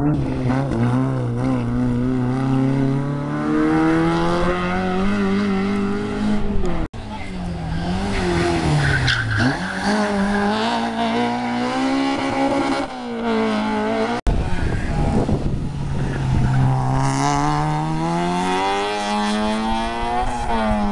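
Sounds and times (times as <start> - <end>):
race car engine revving: 0.0 - 20.9.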